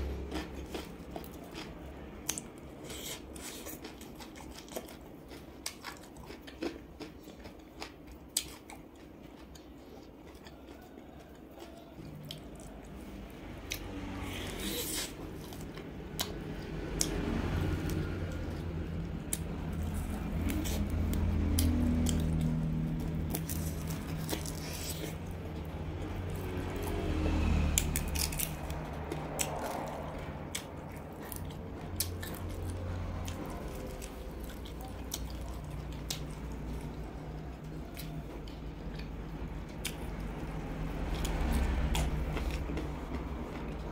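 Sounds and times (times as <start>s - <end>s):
crisp bites and wet chewing: 0.0s - 25.7s
meat and skin tearing: 23.3s - 25.3s, 26.7s - 30.1s.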